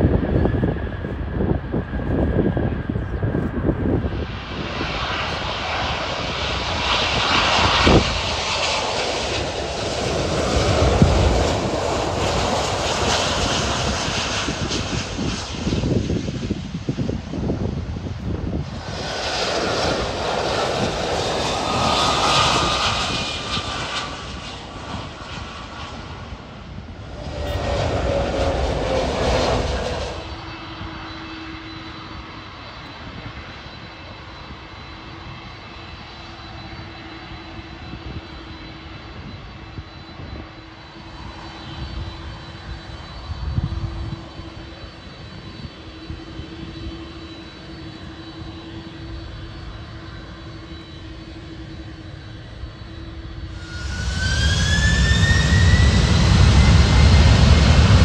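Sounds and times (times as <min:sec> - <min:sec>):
jet airliner passing overhead: 0:00.0 - 0:58.0
steady hum with low drone: 0:36.0 - 0:58.0.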